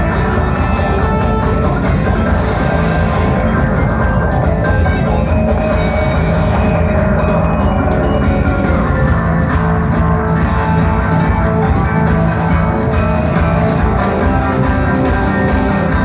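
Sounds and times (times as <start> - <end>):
low bass notes: 0.0 - 16.0
rock band playing live: 0.0 - 16.0.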